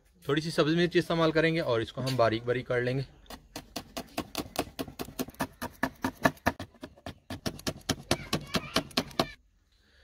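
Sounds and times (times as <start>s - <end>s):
knife chopping chillies: 3.3s - 9.2s.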